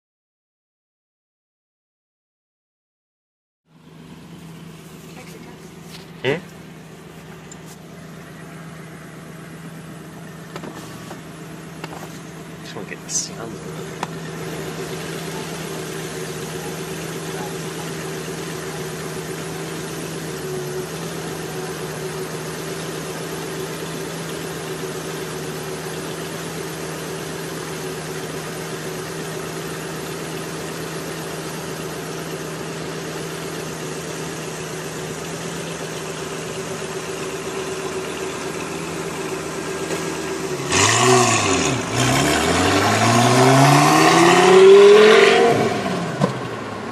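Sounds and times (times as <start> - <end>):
car engine idling: 3.7 - 46.9
sports car accelerating away: 37.0 - 46.9.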